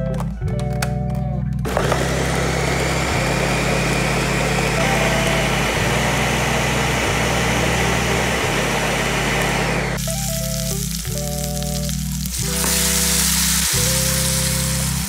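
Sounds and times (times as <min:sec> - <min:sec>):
blender motor running: 0:01.7 - 0:10.1, 0:12.4 - 0:15.0.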